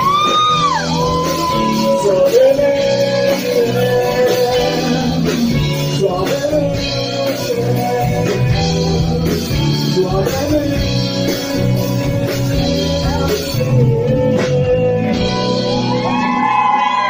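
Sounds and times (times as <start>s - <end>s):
rock band playing ballad: 0.0s - 17.0s.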